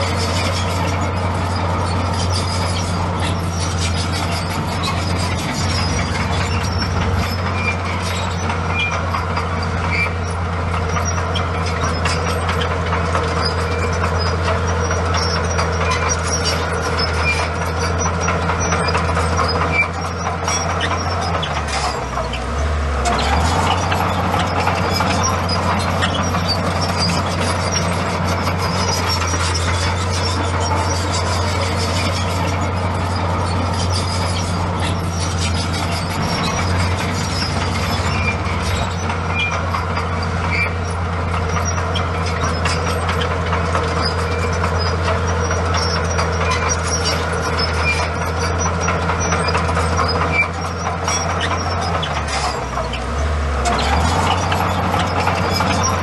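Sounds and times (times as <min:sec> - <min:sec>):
bulldozer diesel engine running: 0:00.0 - 0:56.0
crawler tracks clanking: 0:00.0 - 0:56.0.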